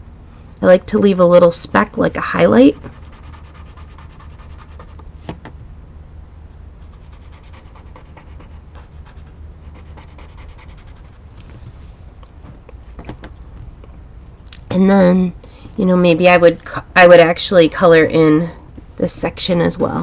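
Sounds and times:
pen scratching on paper: 2.7 - 5.0, 6.8 - 11.2.

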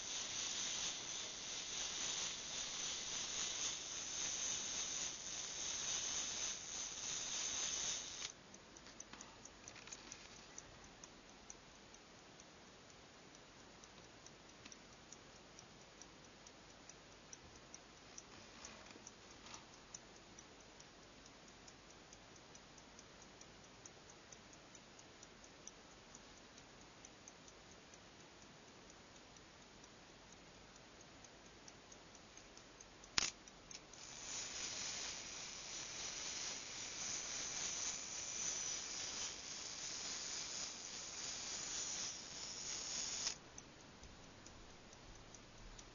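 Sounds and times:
pocket watch ticking: 0.0 - 45.9
sharp click: 33.0 - 44.6.

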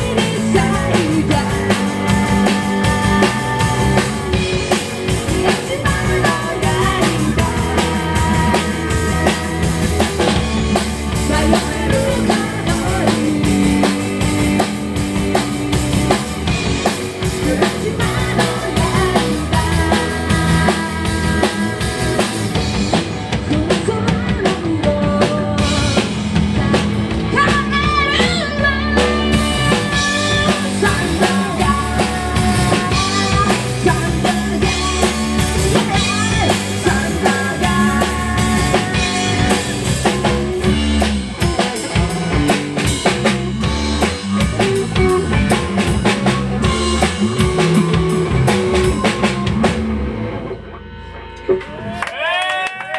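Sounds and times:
woman singing: 0.0 - 14.6, 17.3 - 40.5
live rock band playing: 0.0 - 52.1.

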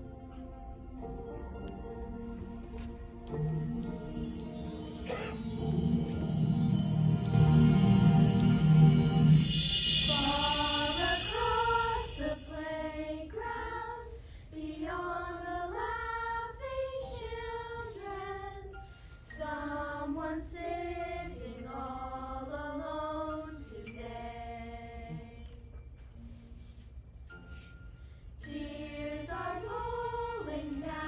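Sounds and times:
girls singing in unison: 10.0 - 25.5, 28.4 - 31.0.

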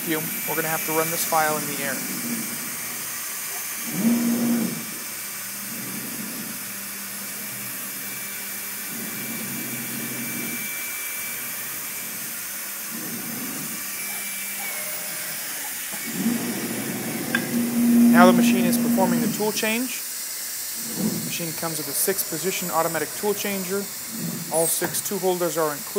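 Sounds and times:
spindle hissing: 0.0 - 5.1, 12.6 - 25.9
low machine whine: 5.6 - 20.0.

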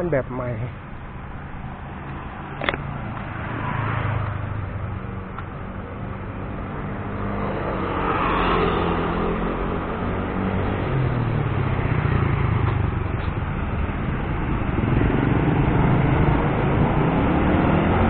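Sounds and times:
passing vehicle: 0.0 - 18.0.

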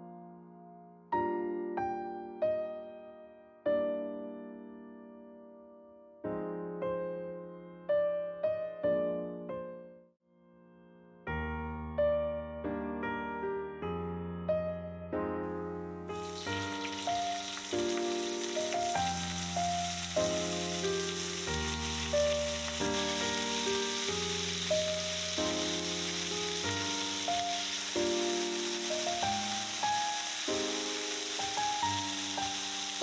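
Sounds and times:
background music: 15.4 - 33.0
chicken sizzling in hot oil: 16.2 - 33.0.

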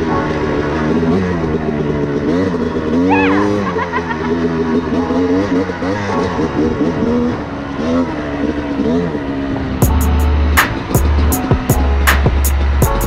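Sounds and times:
dirt bike engine revving: 0.0 - 13.0
heavy bass beat with clicks: 9.8 - 13.0.

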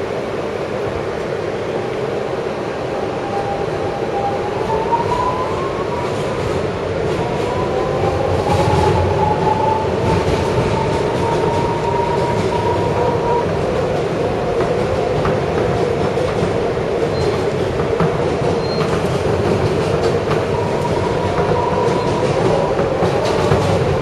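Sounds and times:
rumble of moving train cars: 0.0 - 24.0
wheels clicking over rail joints: 6.1 - 24.0.

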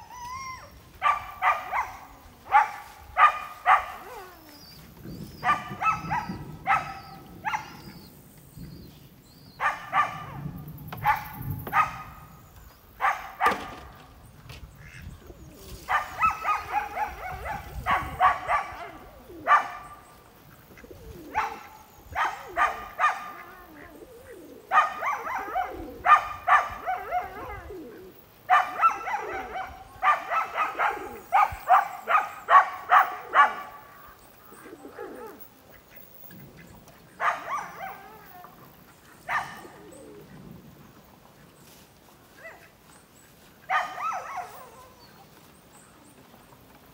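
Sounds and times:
dog barking: 1.0 - 4.4, 5.4 - 8.0, 9.6 - 12.3, 13.0 - 13.9, 15.9 - 20.1, 21.2 - 23.6, 24.7 - 27.9, 28.5 - 33.9, 37.2 - 38.2, 39.3 - 40.2, 43.7 - 45.0.

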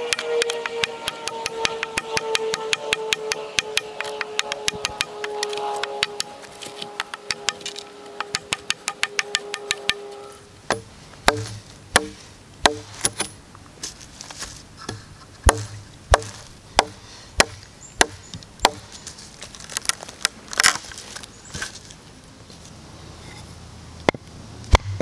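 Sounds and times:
knife chopping into wood: 10.7 - 13.3, 14.9 - 18.9.

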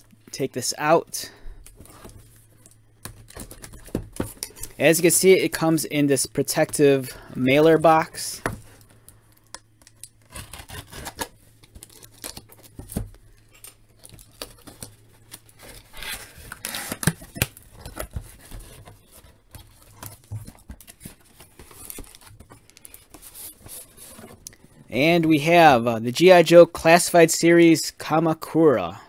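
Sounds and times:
packing tape peeling off cardboard: 9.8 - 20.1.

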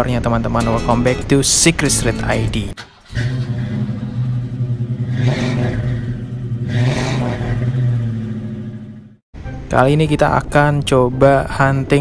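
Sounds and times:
car engine revving: 1.9 - 9.2.

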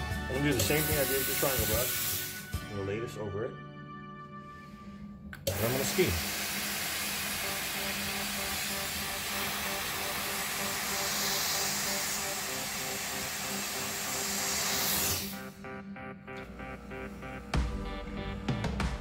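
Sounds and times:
steam cleaner hissing: 0.3 - 2.6, 5.4 - 15.6.

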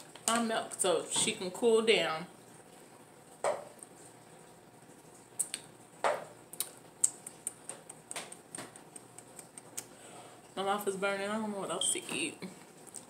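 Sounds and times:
lip and tongue clicks: 5.4 - 5.7, 6.5 - 10.0.

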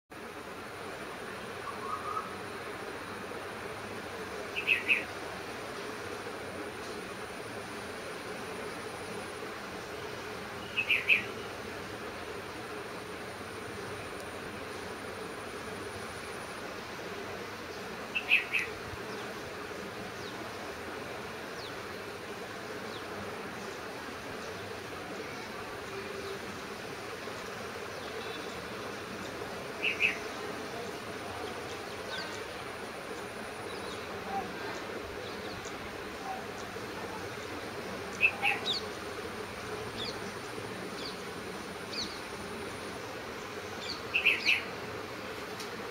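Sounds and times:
outdoor hiss: 0.1 - 45.9
insects buzzing: 0.2 - 45.9
small birds chirping: 4.5 - 6.0, 10.6 - 11.6, 17.6 - 19.4, 27.2 - 42.4, 43.2 - 44.8.

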